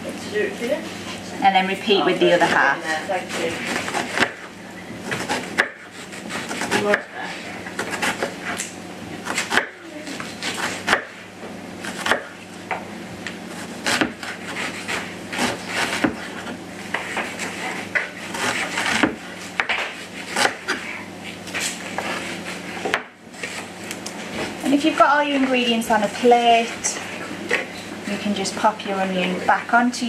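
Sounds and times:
knife scraping: 0:02.1 - 0:12.4, 0:13.5 - 0:24.6
knife chopping on board: 0:03.3 - 0:11.2, 0:11.8 - 0:20.8, 0:21.6 - 0:23.6.

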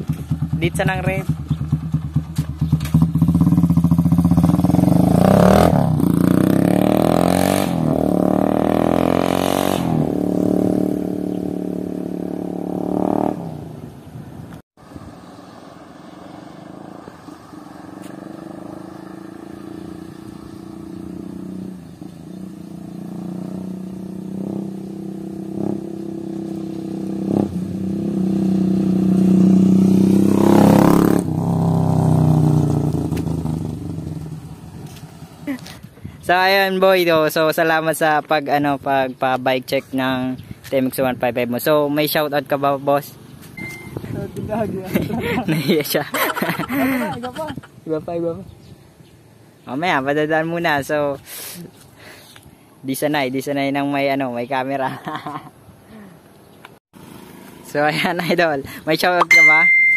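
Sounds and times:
motorcycle engine revving: 0:00.0 - 0:14.0, 0:15.0 - 0:35.7, 0:57.0 - 0:58.7
motorcycle passing close: 0:00.0 - 0:35.8, 0:57.0 - 0:59.9.

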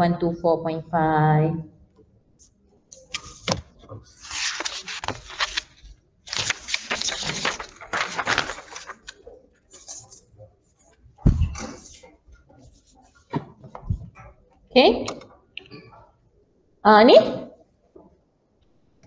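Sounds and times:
rustling scratchy noise: 0:03.1 - 0:14.2.

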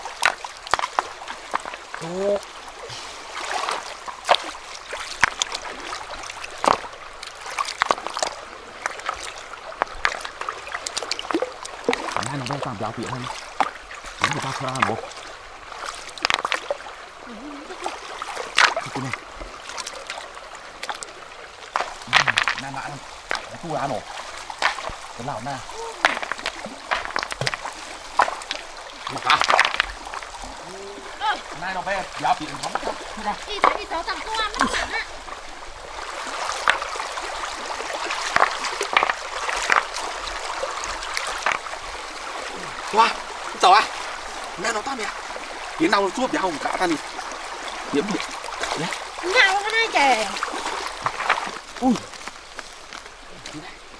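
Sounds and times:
river stones clacking together: 0:00.0 - 0:17.0, 0:17.8 - 0:53.9
river water trickling and sloshing: 0:00.0 - 0:53.9
stones clacking together: 0:00.2 - 0:01.8, 0:05.1 - 0:05.6, 0:06.5 - 0:08.4, 0:16.1 - 0:16.6, 0:21.7 - 0:30.3, 0:33.6 - 0:34.0, 0:36.5 - 0:36.9, 0:38.2 - 0:40.0, 0:40.9 - 0:41.7, 0:50.9 - 0:53.6.

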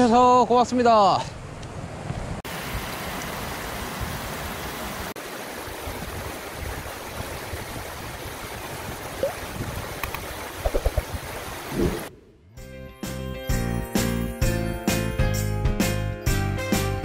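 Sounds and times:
stream rushing over stones: 0:02.5 - 0:12.1.

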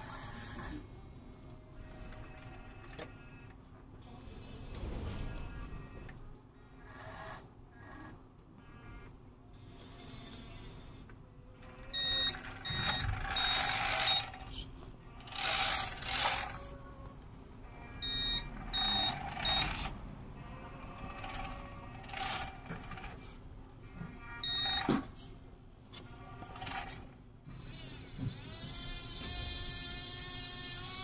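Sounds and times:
reversing beeper quick beeps: 0:12.0 - 0:14.3, 0:18.0 - 0:19.7, 0:24.4 - 0:24.8.

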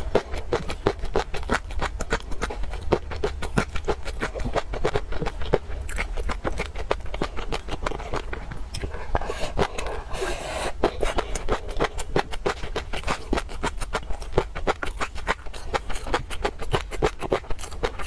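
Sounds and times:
chewing with crisp clicks: 0:00.0 - 0:18.0.

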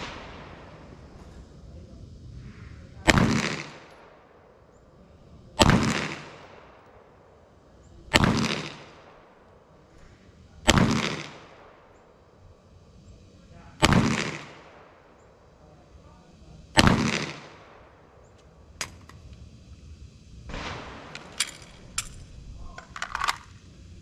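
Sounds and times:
pistol shots: 0:03.0 - 0:04.6, 0:05.6 - 0:07.3, 0:08.1 - 0:12.2, 0:13.8 - 0:15.4, 0:16.8 - 0:19.2.

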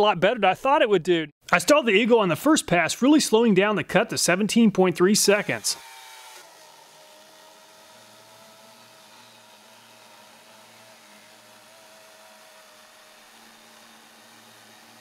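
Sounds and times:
chainsaw cutting wood: 0:05.2 - 0:15.0.

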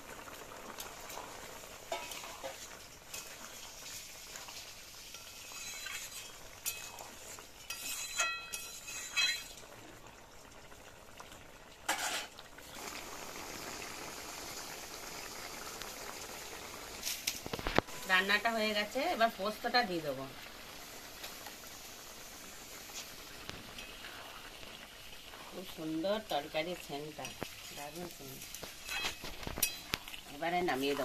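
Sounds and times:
curry bubbling: 0:00.0 - 0:31.0
metal spatula scraping a pan: 0:01.1 - 0:09.6, 0:11.9 - 0:12.3, 0:27.2 - 0:31.0.

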